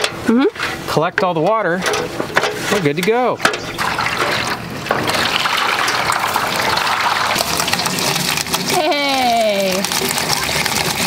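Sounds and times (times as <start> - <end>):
water rushing through gutter: 1.2 - 11.0
water pouring onto roof: 3.6 - 11.0.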